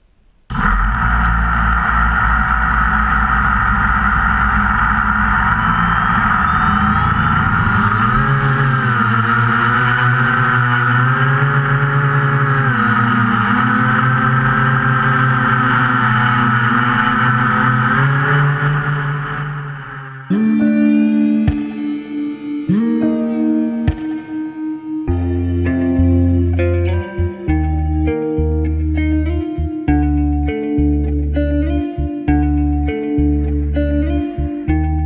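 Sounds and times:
drone motors whining: 0.5 - 21.8.

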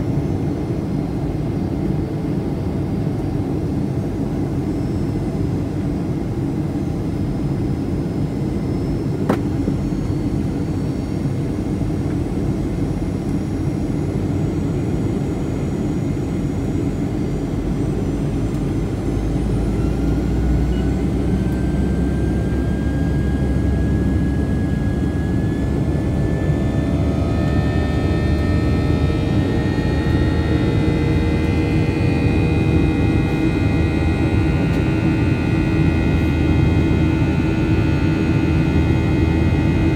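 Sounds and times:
deep rumble of engine and air: 0.0 - 39.9
thin whine: 8.0 - 39.9.

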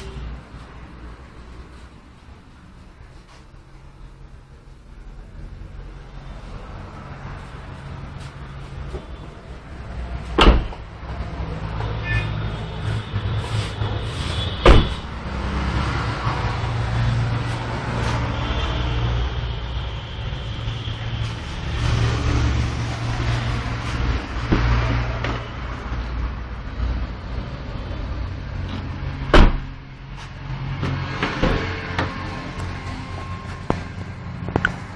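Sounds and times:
loud thumps: 29.3 - 29.8.

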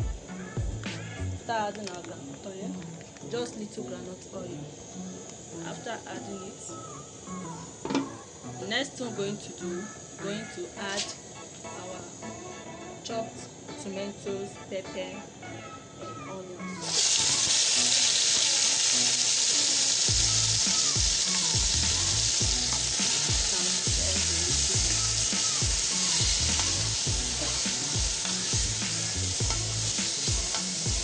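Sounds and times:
vegetables sizzling in hot oil: 16.6 - 31.0.

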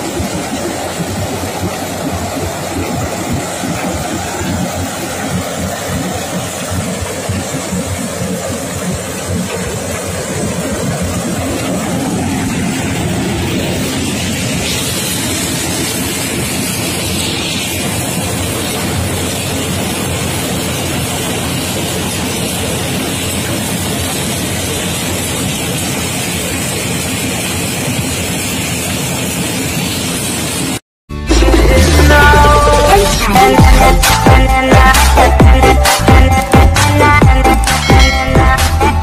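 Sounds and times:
combine harvester running: 0.0 - 39.0.

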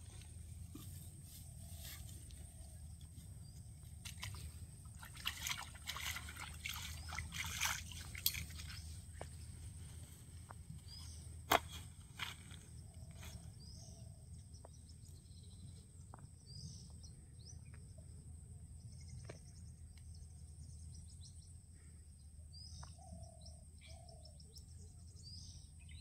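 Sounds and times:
water splashing and sloshing: 3.8 - 9.5.

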